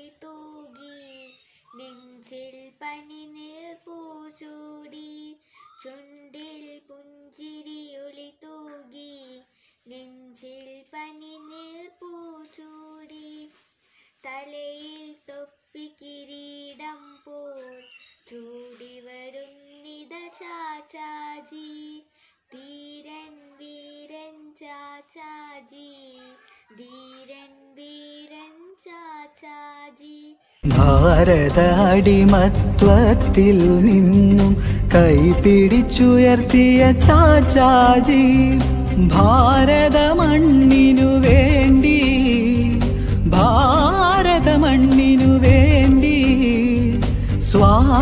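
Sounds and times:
girl singing unaccompanied: 0:00.0 - 0:48.0
short breath: 0:01.4 - 0:01.8, 0:09.5 - 0:09.9, 0:13.6 - 0:14.3, 0:22.1 - 0:22.5, 0:34.6 - 0:34.9, 0:42.9 - 0:43.2.

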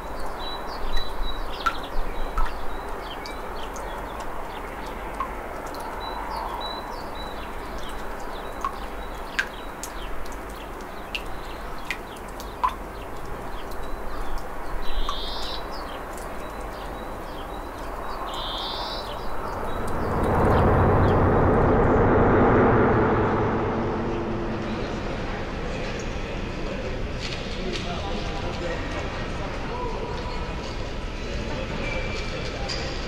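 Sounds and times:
birds chirping: 0:00.0 - 0:21.9
steady background hum: 0:19.3 - 0:27.1.

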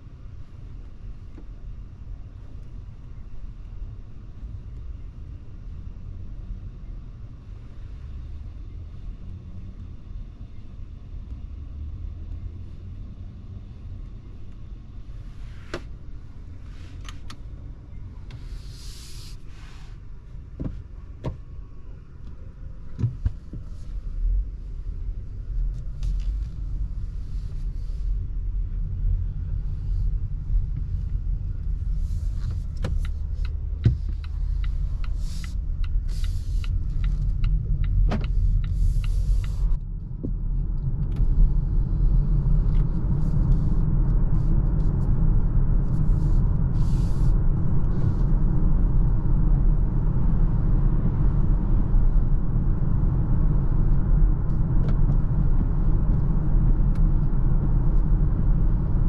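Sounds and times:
car cabin rumble: 0:00.0 - 0:59.0
brief hiss: 0:18.4 - 0:20.0.

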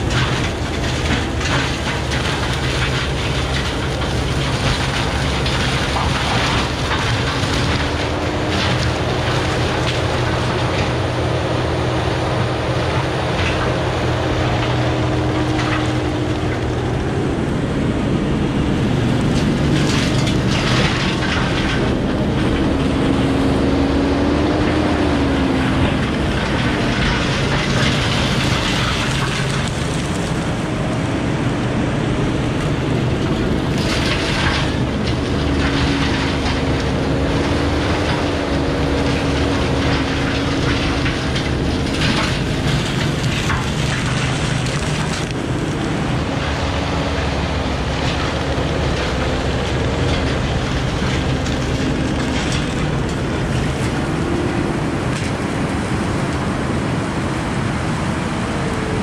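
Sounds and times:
mulcher crunching brush: 0:00.0 - 0:57.8
diesel and hydraulic drone: 0:00.0 - 0:59.0.

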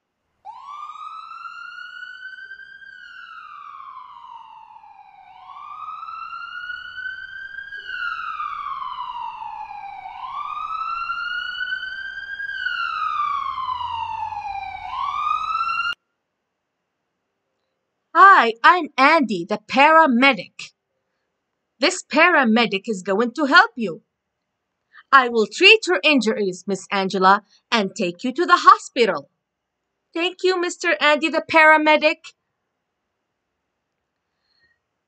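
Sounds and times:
emergency vehicle siren wailing: 0:00.5 - 0:16.0.

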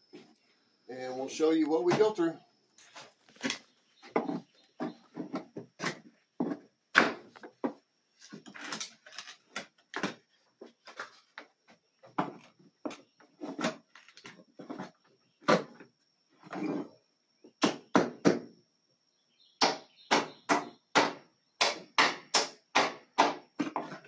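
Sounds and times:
wood knocking and cracking: 0:03.2 - 0:14.4.

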